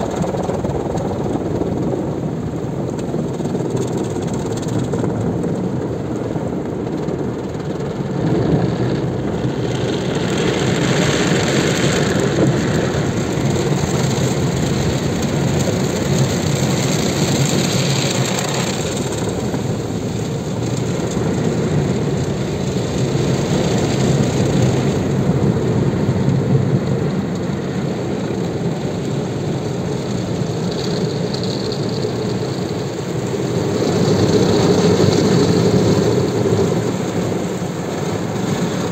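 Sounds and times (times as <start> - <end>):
car wash machinery running: 0.0 - 38.9
water spray on car: 9.8 - 38.9.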